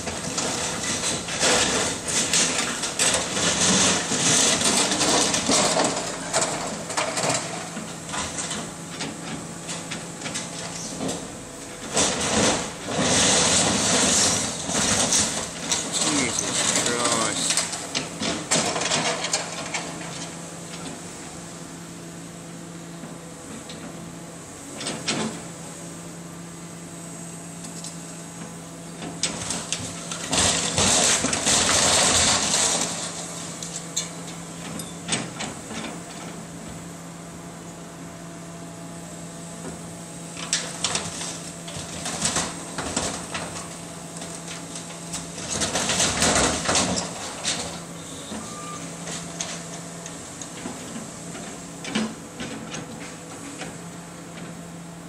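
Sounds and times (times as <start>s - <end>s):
excavator engine hum: 0.0s - 55.0s
building crunching and clattering: 11.8s - 20.3s, 29.0s - 34.0s, 40.4s - 47.8s.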